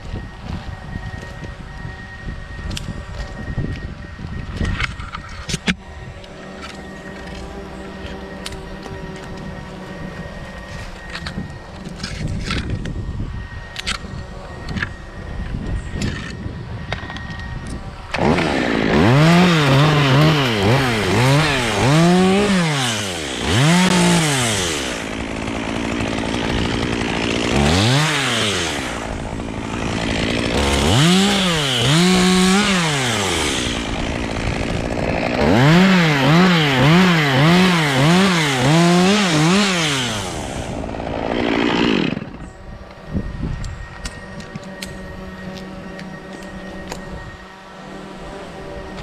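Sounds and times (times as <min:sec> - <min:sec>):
chainsaw revving while cutting: 0:18.1 - 0:42.5.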